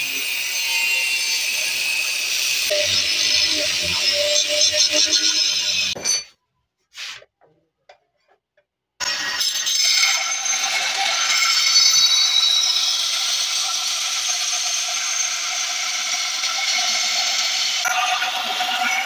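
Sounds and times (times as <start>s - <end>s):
belt sander grinding metal: 0.0s - 6.2s.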